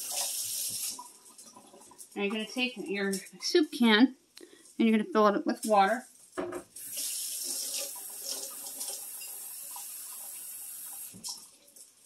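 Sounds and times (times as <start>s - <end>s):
tap running water into a can: 0.0s - 2.4s, 6.5s - 11.8s.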